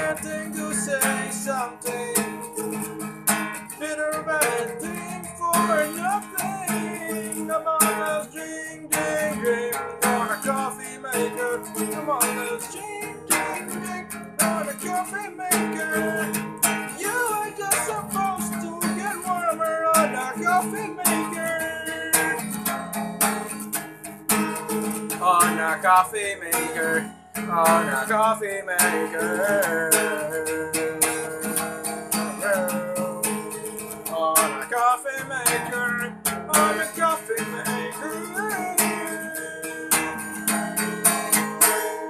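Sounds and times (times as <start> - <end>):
man singing: 0.0 - 23.7, 24.5 - 42.0
acoustic guitar strummed: 0.0 - 42.0.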